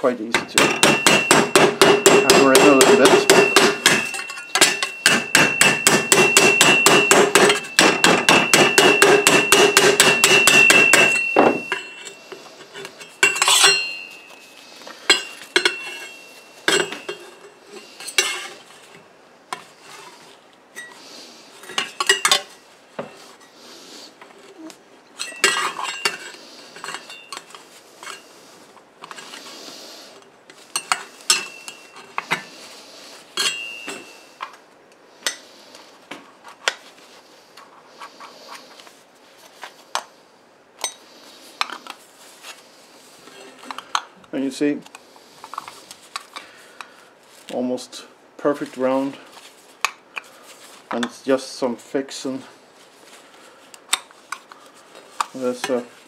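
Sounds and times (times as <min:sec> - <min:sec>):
sheet metal clinking and scraping: 0:00.3 - 0:18.9, 0:33.4 - 0:34.2.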